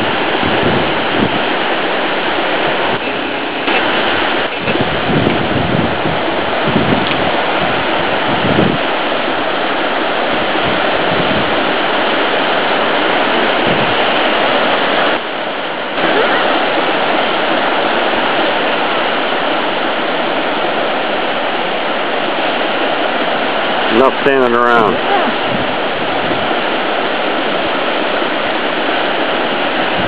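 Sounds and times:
surf breaking on beach: 0.0 - 30.0.

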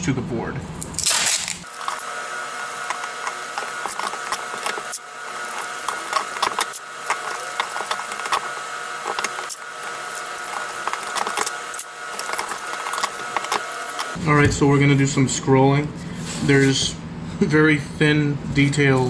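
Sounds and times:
packing tape crackling off roll: 1.0 - 14.2
steady background whine: 1.6 - 14.3.

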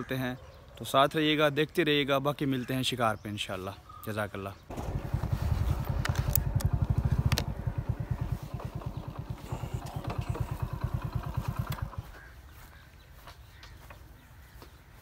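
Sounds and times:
small engine chugging: 4.7 - 12.3
sharp clicks: 4.8 - 12.0.

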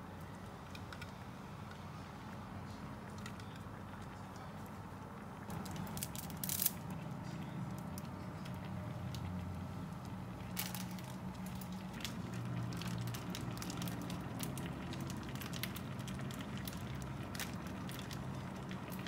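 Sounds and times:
sauce bubbling in a frying pan: 4.8 - 19.0.

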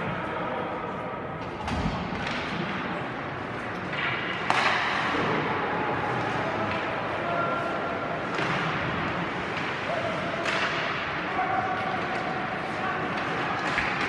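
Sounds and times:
arena crowd hubbub: 0.0 - 14.0
sticks and puck clacking: 1.3 - 14.0
skates scraping ice: 3.0 - 14.0.

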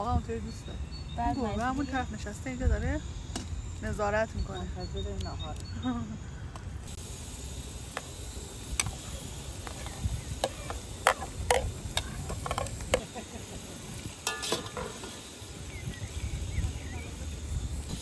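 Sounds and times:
metal spoon clinking on plate: 14.2 - 15.1.

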